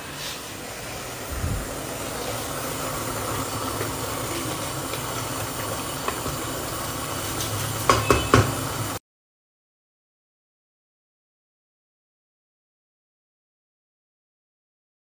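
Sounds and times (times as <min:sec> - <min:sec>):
gas burner hissing: 0:00.0 - 0:09.0.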